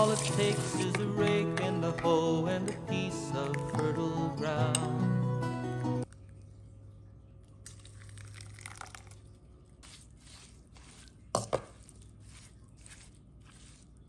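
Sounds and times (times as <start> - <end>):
wet squishing and rustling: 7.5 - 14.0.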